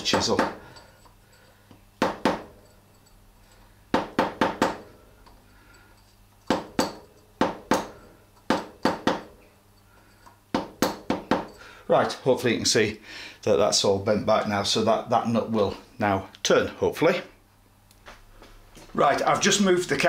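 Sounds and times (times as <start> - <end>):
mallet tapping metal punch: 0.0 - 1.2, 2.0 - 2.6, 3.9 - 4.9, 6.4 - 9.4, 10.5 - 11.6.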